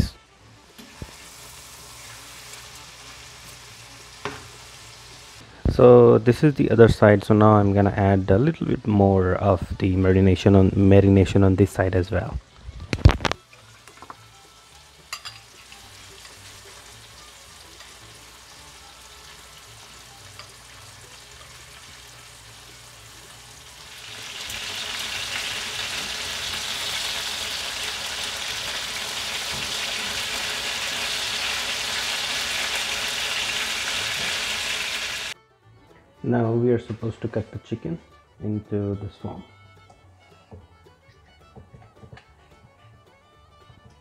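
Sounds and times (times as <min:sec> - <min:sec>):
chicken sizzling in a pan: 0:00.0 - 0:05.4, 0:13.3 - 0:35.4.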